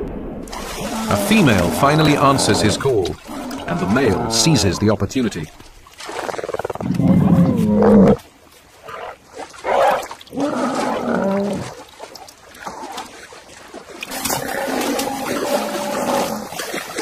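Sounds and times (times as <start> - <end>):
animal courtship calls: 0.8 - 4.8.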